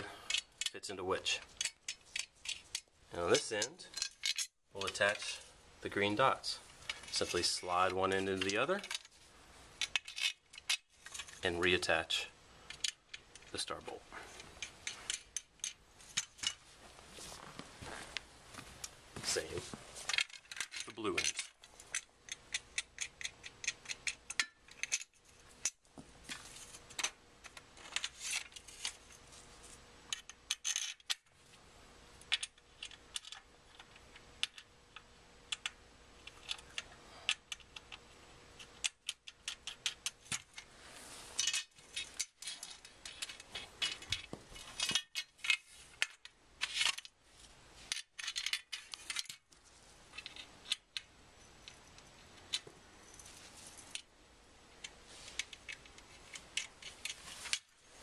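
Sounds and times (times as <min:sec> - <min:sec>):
metal frame pieces clicking: 0:00.2 - 0:05.4, 0:06.8 - 0:09.1, 0:09.8 - 0:11.4, 0:12.7 - 0:13.6, 0:14.6 - 0:16.6, 0:20.1 - 0:29.1, 0:38.6 - 0:40.7, 0:41.4 - 0:47.1, 0:47.9 - 0:49.5, 0:50.1 - 0:52.7, 0:54.8 - 0:57.7.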